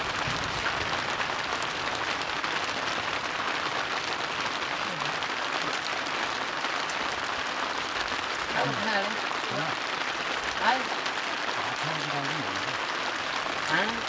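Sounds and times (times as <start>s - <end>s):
faint voice: 4.8s - 5.9s, 8.5s - 9.8s, 11.6s - 12.8s, 13.7s - 14.0s.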